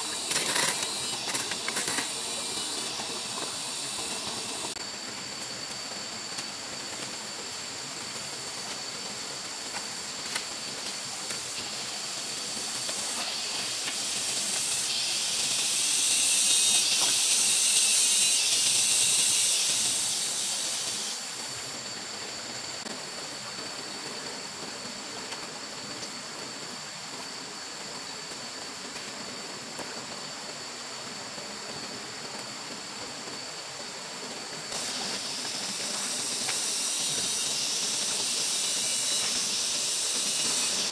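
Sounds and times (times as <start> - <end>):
high-pitched whine: 0.0 - 7.6, 9.4 - 22.0, 34.6 - 40.9
loud high hiss: 0.0 - 26.0, 30.2 - 40.9.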